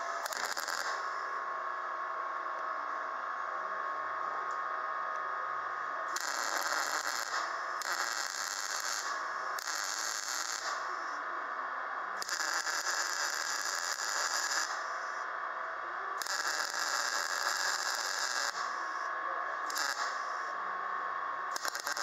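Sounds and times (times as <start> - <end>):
welding arc crackling: 0.0 - 1.2, 6.1 - 11.1, 12.2 - 15.1, 16.2 - 19.0, 19.6 - 20.4, 21.5 - 22.0.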